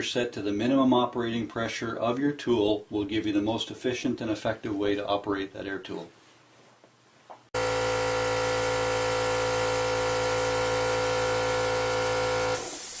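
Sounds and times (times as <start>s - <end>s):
air compressor humming: 7.6s - 13.0s.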